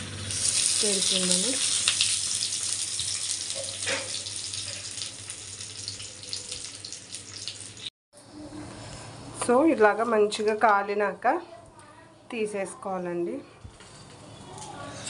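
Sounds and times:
fish sizzling in a pan: 0.0s - 7.9s.

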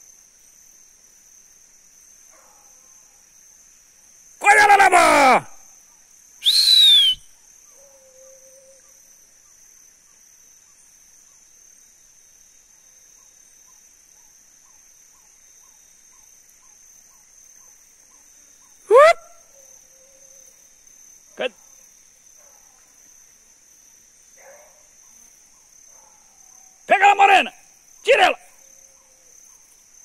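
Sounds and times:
chorus of forest insects: 0.0s - 30.0s
loud short cries: 4.4s - 5.6s, 6.4s - 7.2s, 18.9s - 19.3s.

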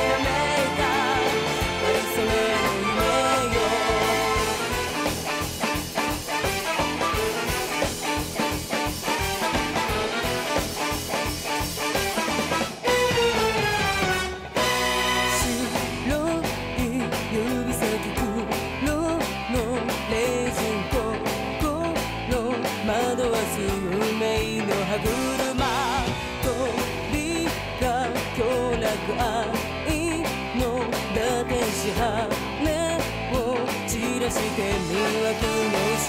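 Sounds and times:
woman singing pop song: 0.0s - 4.8s, 15.2s - 36.0s
steady drum beat: 0.0s - 36.0s.

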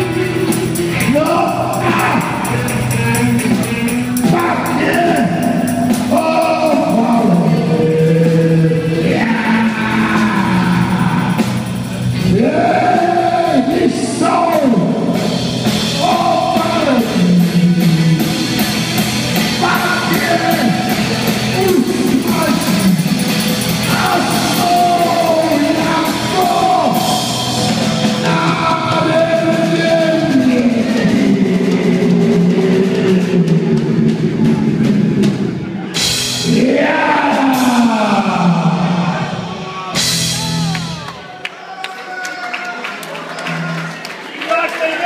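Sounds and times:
rock band playing: 0.0s - 41.5s, 42.8s - 45.0s
person singing: 0.9s - 18.4s, 23.8s - 35.0s, 35.9s - 41.3s.

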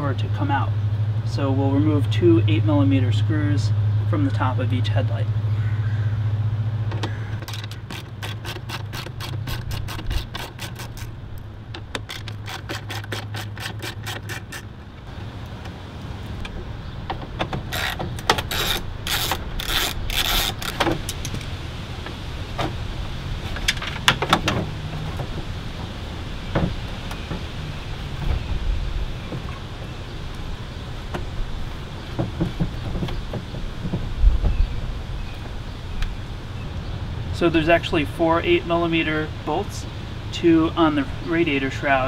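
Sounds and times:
rattles: 6.9s - 15.0s
socket ratchet clicking: 7.4s - 11.1s, 11.8s - 14.7s, 17.7s - 21.4s.

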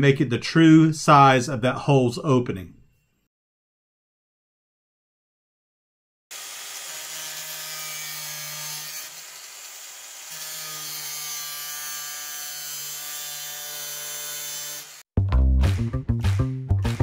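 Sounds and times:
angle grinder cutting sheet metal: 6.3s - 15.1s.

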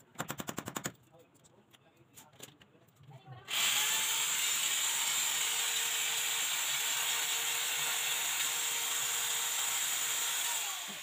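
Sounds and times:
electric drill boring into wall: 3.5s - 11.0s.

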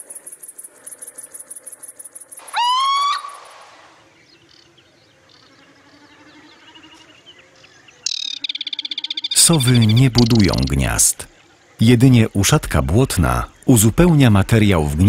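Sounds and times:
crickets pulsing: 0.0s - 15.0s
owl rising call: 2.4s - 4.0s.

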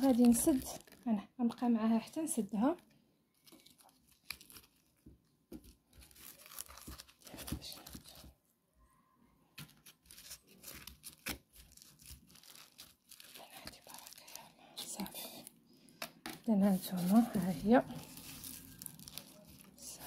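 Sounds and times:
lemons squishing and crackling: 0.0s - 1.7s, 16.6s - 20.0s.

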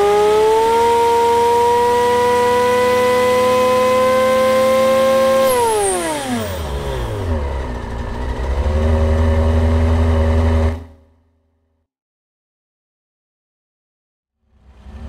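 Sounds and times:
car engine revving and idling: 0.0s - 11.1s, 14.5s - 15.0s.

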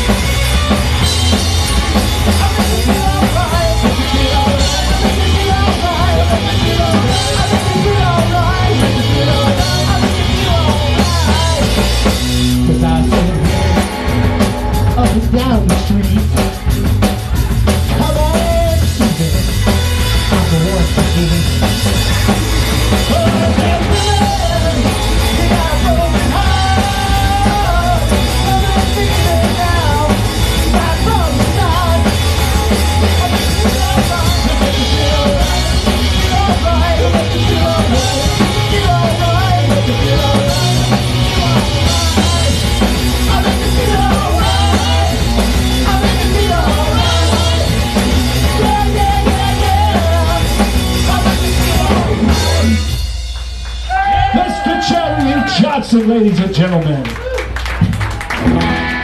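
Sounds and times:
man singing: 0.0s - 16.8s, 17.8s - 21.9s, 22.9s - 53.0s
distorted electric guitar and bass: 0.0s - 59.0s
drum kit: 0.0s - 59.0s.

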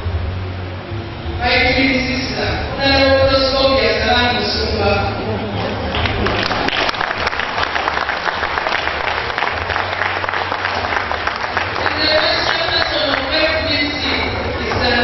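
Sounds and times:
audience applauding: 5.7s - 15.0s
person speaking: 11.8s - 15.0s.

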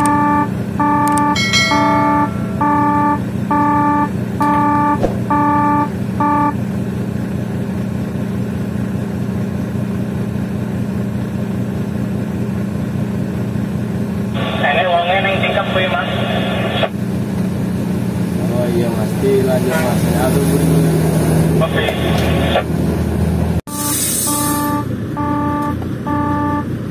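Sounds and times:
electronic beeps: 0.0s - 6.6s, 23.7s - 26.6s
vehicle engine humming: 0.0s - 26.9s.

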